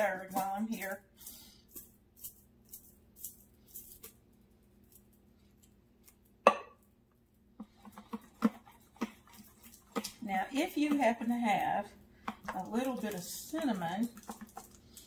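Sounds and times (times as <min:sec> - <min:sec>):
scraping corn from a can: 0:07.6 - 0:15.0.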